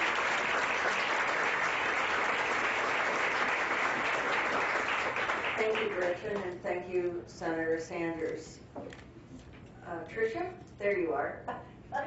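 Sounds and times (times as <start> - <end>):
audience applauding: 0.0 - 6.3.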